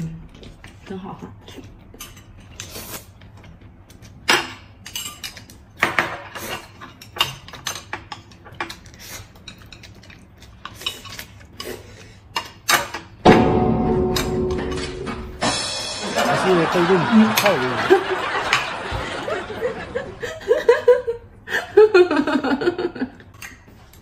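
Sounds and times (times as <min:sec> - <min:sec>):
chopsticks clicking and scraping: 0:00.4 - 0:05.7, 0:06.3 - 0:13.1, 0:23.2 - 0:24.0
loud burst of music: 0:13.3 - 0:17.1.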